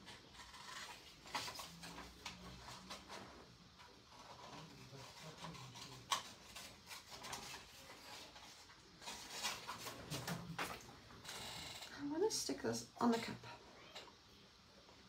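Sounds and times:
paper rustling: 0.0 - 3.4, 4.1 - 10.9.

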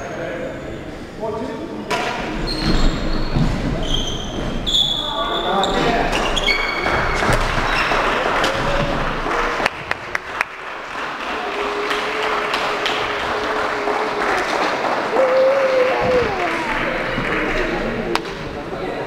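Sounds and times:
shoe squeaks: 2.4 - 8.0.

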